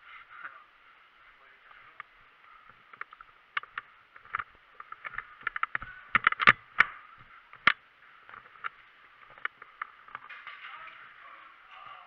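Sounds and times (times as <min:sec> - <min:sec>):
sharp clicks and knocks: 0:02.0 - 0:11.0.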